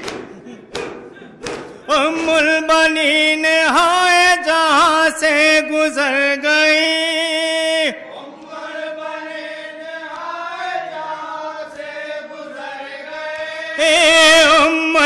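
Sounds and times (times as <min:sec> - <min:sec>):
men chanting a slow lament: 0:01.8 - 0:15.0.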